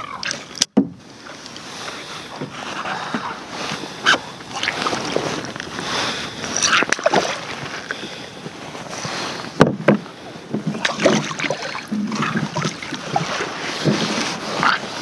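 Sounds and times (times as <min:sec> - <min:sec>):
water splashing: 0:00.0 - 0:15.0
fish knocking in kayak: 0:09.5 - 0:14.1.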